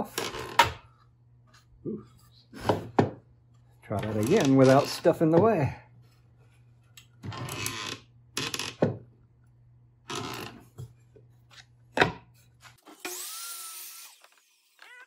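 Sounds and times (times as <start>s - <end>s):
miter saw whirring: 12.9s - 15.0s.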